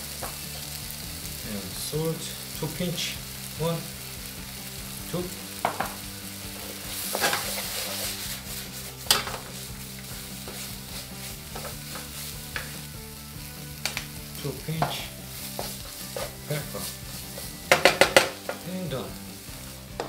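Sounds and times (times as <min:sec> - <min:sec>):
stir-fry sizzling in a pan: 0:00.0 - 0:20.0
wooden spatula scraping pan: 0:05.6 - 0:12.9, 0:14.8 - 0:18.7.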